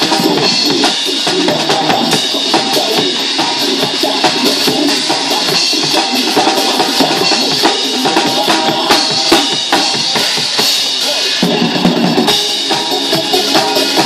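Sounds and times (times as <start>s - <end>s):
bass drum: 0.0s - 10.7s
cymbals: 0.0s - 14.0s.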